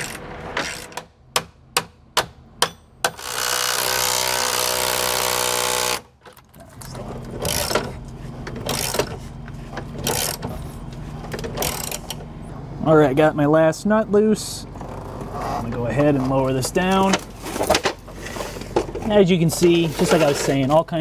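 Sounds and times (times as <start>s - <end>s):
impact wrench spinning: 8.6s - 9.2s, 10.0s - 10.4s, 11.4s - 12.2s.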